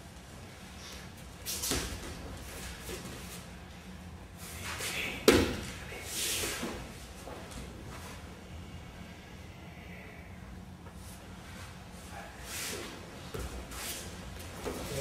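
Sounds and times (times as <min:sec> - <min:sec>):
body slapping onto mat: 0:05.2 - 0:05.8.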